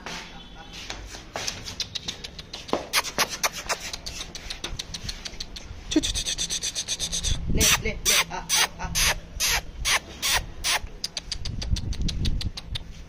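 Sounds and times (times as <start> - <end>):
puppy claws clicking on tiles: 1.4 - 5.7.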